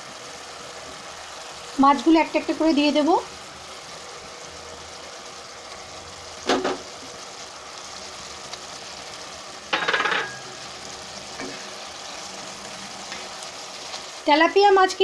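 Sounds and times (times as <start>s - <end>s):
gravy sizzling and bubbling: 0.0s - 15.0s
utensils clattering against pan: 9.7s - 10.6s, 11.4s - 11.7s.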